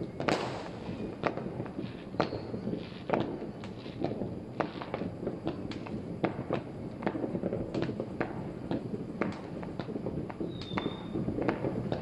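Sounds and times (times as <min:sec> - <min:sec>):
firecracker bangs: 0:00.0 - 0:12.0
fireworks crackling: 0:00.0 - 0:12.0
high whistle: 0:10.4 - 0:11.2.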